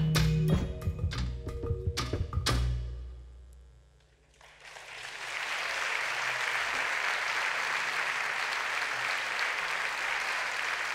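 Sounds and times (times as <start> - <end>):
audience applause: 4.3 - 10.9.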